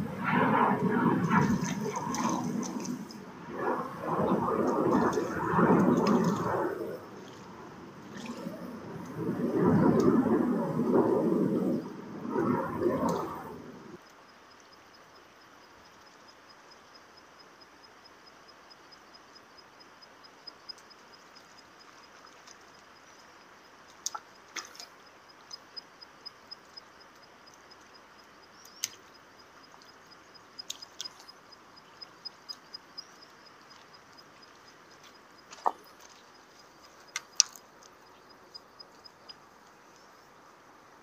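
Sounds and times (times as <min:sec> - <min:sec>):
fish splashing at the surface: 0:01.1 - 0:03.3
faint pulsing high chirp: 0:25.0 - 0:37.2.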